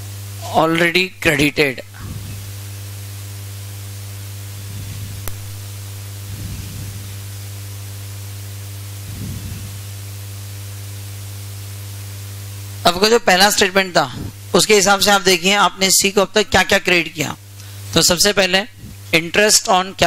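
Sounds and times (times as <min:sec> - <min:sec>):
electrical hum: 0:00.0 - 0:20.0
recording hiss: 0:04.4 - 0:19.9
click: 0:05.2 - 0:05.5.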